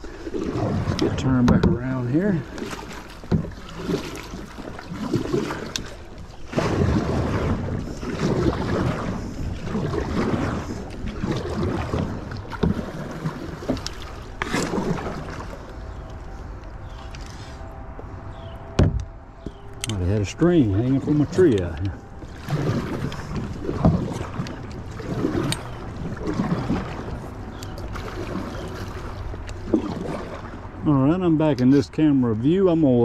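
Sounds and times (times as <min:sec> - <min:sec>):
kayak paddle splashing in water: 0:00.0 - 0:17.6, 0:19.5 - 0:31.7
wind noise on microphone: 0:06.5 - 0:12.9.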